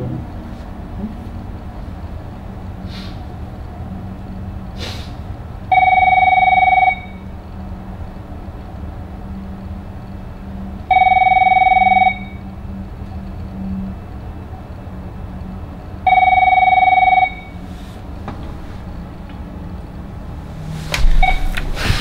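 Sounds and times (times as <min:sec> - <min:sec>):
electronic telephone ring: 0:05.7 - 0:07.2, 0:10.9 - 0:12.4, 0:16.1 - 0:17.5.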